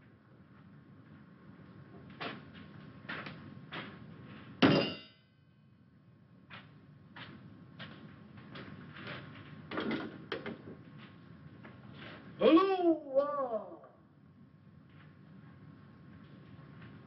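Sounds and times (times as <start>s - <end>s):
metal clang: 4.6s - 5.4s.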